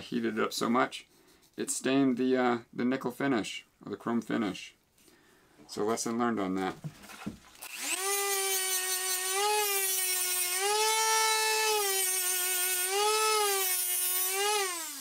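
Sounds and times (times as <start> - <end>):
rotary tool whine: 7.6 - 15.0.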